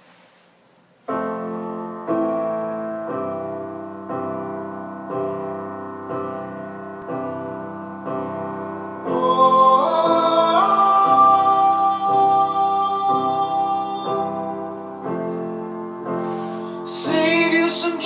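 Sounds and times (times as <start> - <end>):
piano chords played slowly: 1.0 - 18.0
person singing: 8.2 - 15.6, 16.2 - 18.0.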